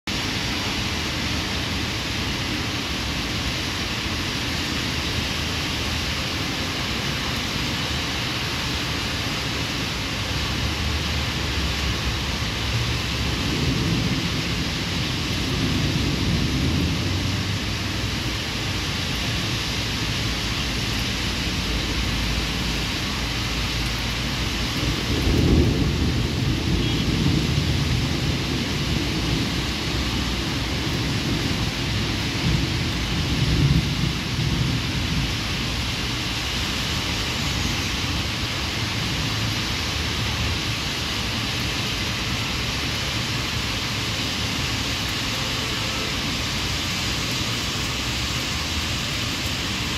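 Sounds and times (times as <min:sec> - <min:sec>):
heavy rain falling: 0:00.0 - 0:49.9
thunder rumbling: 0:10.5 - 0:19.5, 0:20.2 - 0:37.1.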